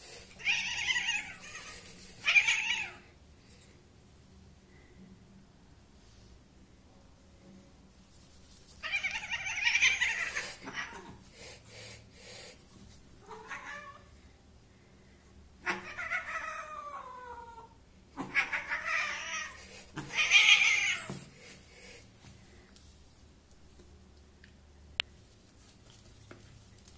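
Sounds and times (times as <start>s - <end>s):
cat yowling: 0.4s - 3.0s, 8.8s - 11.2s, 13.2s - 14.1s, 15.6s - 21.2s.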